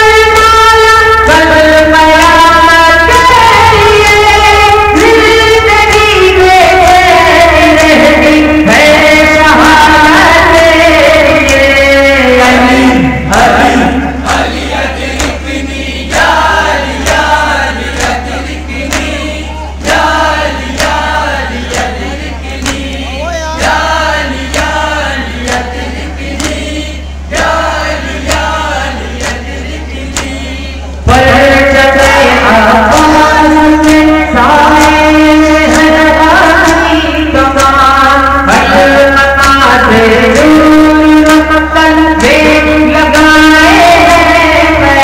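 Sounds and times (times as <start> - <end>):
lead voice singing: 0.0 - 45.0
men chanting: 0.0 - 45.0
hands slapping chests: 15.2 - 15.4, 18.9 - 20.0, 20.7 - 21.1, 22.6 - 23.0, 26.4 - 26.6.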